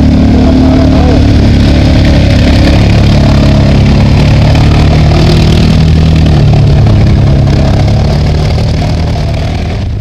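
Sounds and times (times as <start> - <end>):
atv engine running: 0.0 - 10.0.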